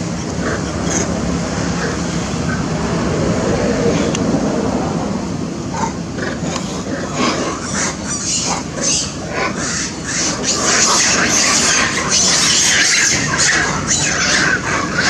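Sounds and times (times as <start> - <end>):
background rumble: 0.0 - 15.0
monkeys squealing and screeching: 5.8 - 15.0.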